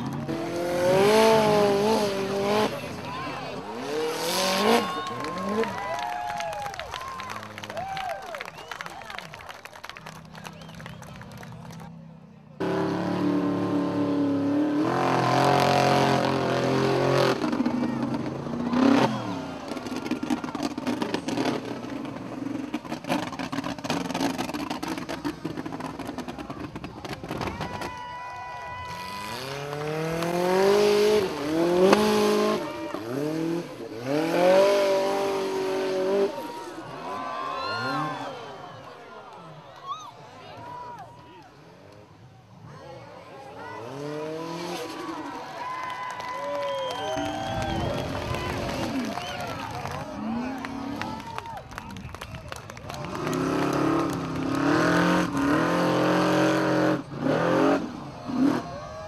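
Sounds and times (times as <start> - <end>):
buggy engine revving hard: 0.0 - 6.2, 12.6 - 27.8, 28.8 - 38.4, 43.6 - 45.4, 46.7 - 51.3, 52.8 - 59.0.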